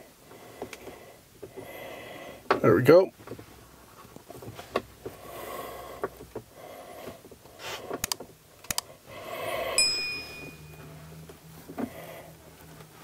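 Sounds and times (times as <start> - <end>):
short ringing chime: 9.8 - 10.9.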